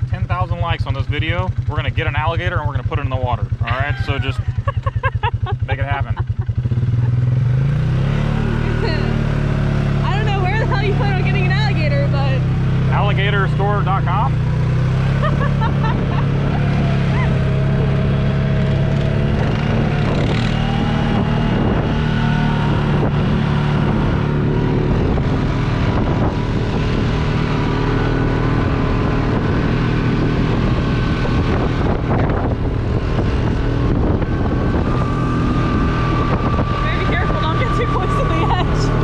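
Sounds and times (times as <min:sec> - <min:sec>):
vehicle engine running: 0:00.0 - 0:39.0
wind on microphone: 0:15.4 - 0:39.0.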